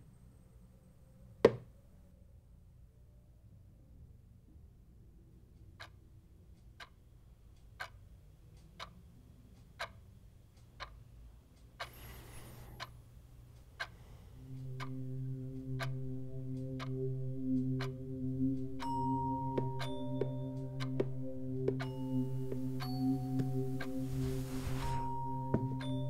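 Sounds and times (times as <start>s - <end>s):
clock ticking: 5.6s - 26.0s
low held tone: 14.4s - 26.0s.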